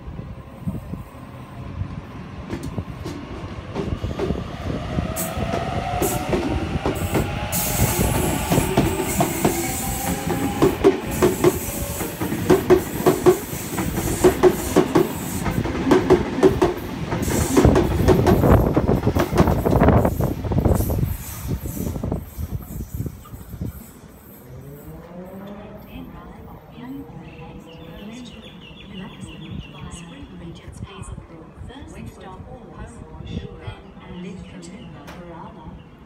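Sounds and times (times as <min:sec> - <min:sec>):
train wheels clacking on rail joints: 0:05.4 - 0:19.9.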